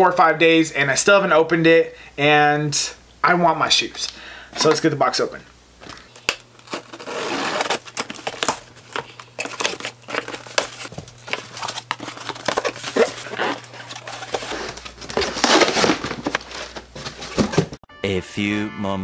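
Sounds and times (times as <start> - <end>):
cardboard box being opened: 5.8 - 17.8
packing rustling and crinkling: 5.8 - 17.8
box scraping and knocking: 6.6 - 17.8.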